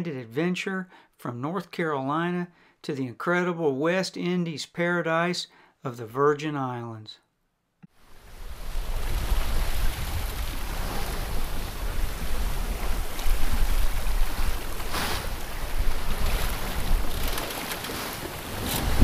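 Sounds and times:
wind buffeting microphone: 0:08.2 - 0:19.0
water splashing along boat hull: 0:08.4 - 0:19.0.

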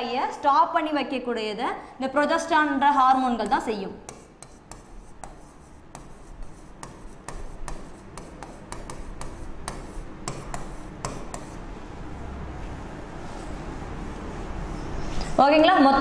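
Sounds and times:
stylus tapping and scraping: 0:03.4 - 0:11.7.

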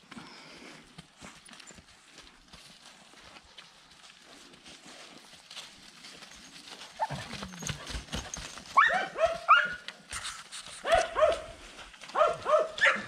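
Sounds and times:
dog barking: 0:08.8 - 0:09.8, 0:10.8 - 0:13.0.

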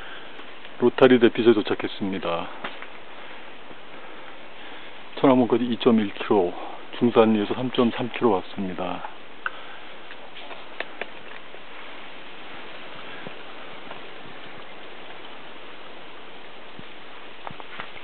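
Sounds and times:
footsteps on stone path: 0:00.0 - 0:00.8, 0:02.5 - 0:04.6, 0:09.4 - 0:15.7, 0:16.7 - 0:18.0
outdoor background hiss: 0:00.0 - 0:18.0.

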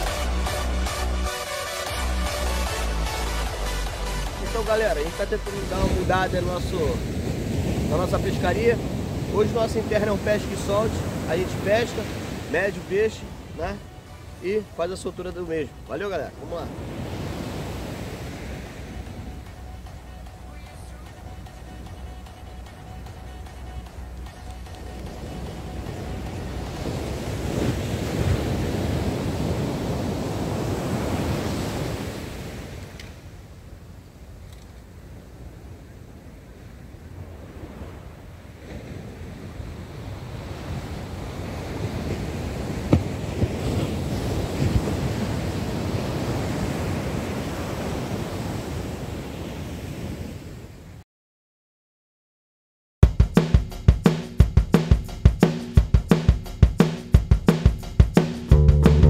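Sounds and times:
ocean surf breaking: 0:00.0 - 0:50.8.

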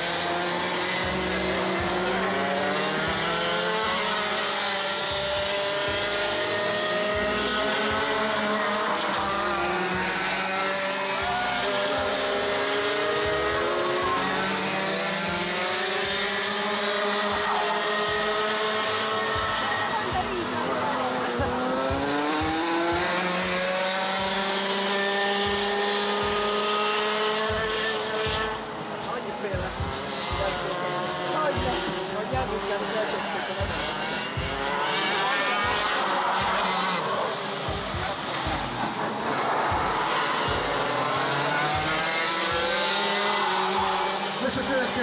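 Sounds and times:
kart engine at high revs: 0:00.0 - 0:45.0.

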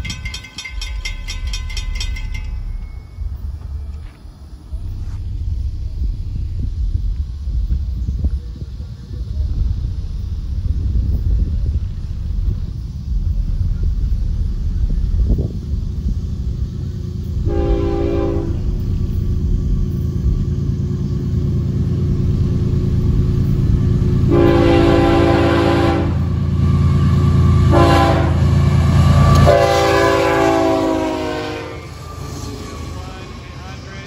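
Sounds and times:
locomotive engines rumbling: 0:00.0 - 0:34.0
locomotive air horn blasts: 0:17.4 - 0:18.7, 0:24.3 - 0:26.4, 0:27.5 - 0:32.0.

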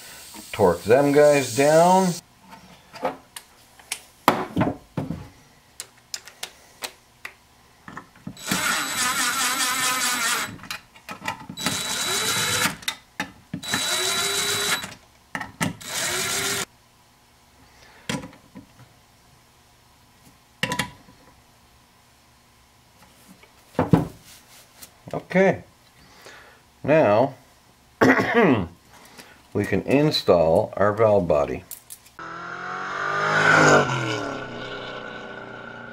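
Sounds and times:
electric drill driving bolts: 0:08.4 - 0:10.7, 0:11.6 - 0:12.9, 0:13.6 - 0:15.0, 0:15.7 - 0:16.7.

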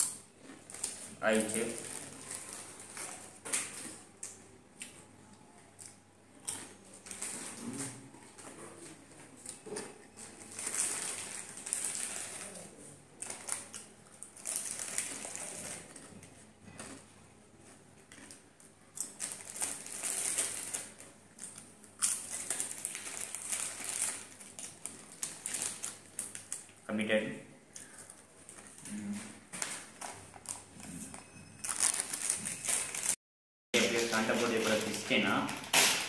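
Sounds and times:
plastic chip packet crinkling: 0:00.0 - 0:04.0, 0:06.4 - 0:07.7, 0:09.3 - 0:12.6, 0:13.2 - 0:16.1, 0:19.0 - 0:26.8, 0:31.6 - 0:33.2, 0:33.8 - 0:36.0
chewing crunchy chips: 0:05.7 - 0:26.8.

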